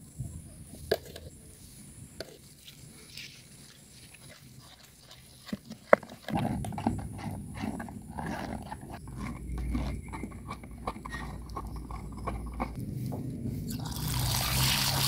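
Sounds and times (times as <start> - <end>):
dough being stirred: 3.6 - 12.8.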